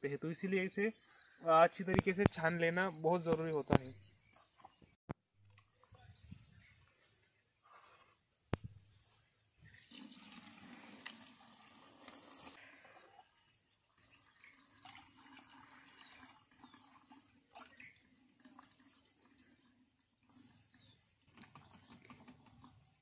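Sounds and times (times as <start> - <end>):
liquid pouring into bucket: 9.7 - 20.6, 21.2 - 23.0.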